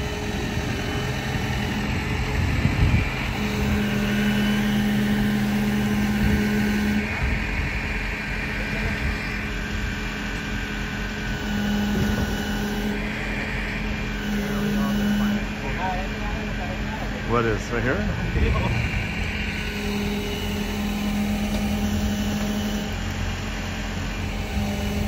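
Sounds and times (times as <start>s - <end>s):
truck engine idling: 0.0s - 25.0s.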